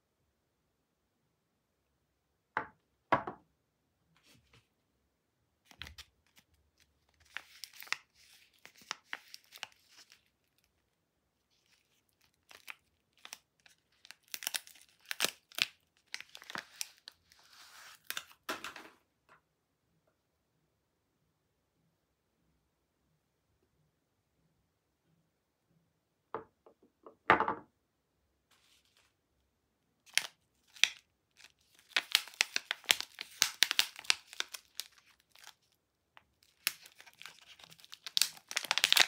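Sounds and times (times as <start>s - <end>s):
foil wrapper crinkling: 5.7s - 10.8s, 11.6s - 18.4s, 30.1s - 35.7s, 36.4s - 39.0s.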